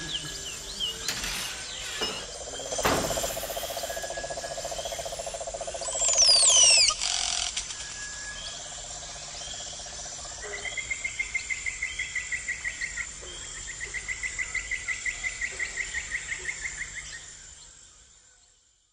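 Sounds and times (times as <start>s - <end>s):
high insect whine: 0.0s - 12.0s
falling whistled bird calls: 5.8s - 8.6s.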